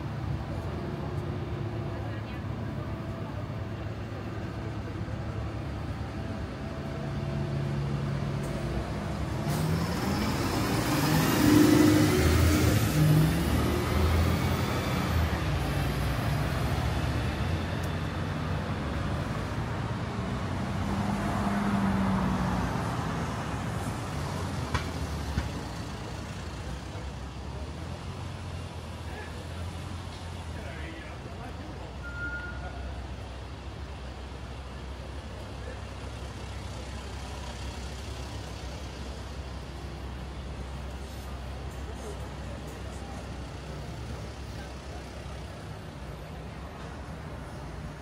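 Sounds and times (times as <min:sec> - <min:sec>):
city traffic engines: 0:00.0 - 0:48.0
vehicle passing by: 0:07.5 - 0:17.7, 0:20.3 - 0:26.2.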